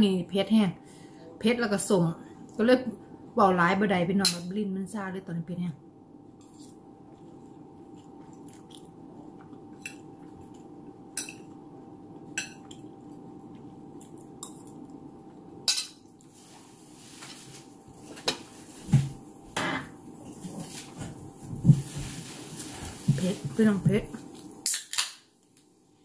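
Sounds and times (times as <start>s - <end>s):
steady low hum: 0.0s - 24.7s.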